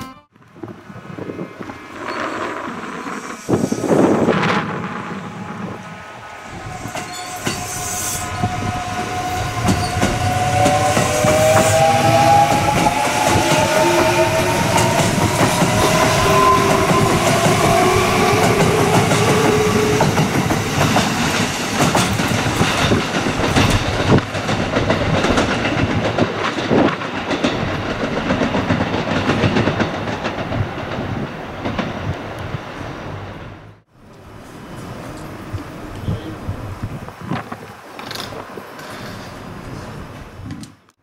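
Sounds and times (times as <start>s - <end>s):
wheels clattering over rail joints: 14.3s - 32.1s.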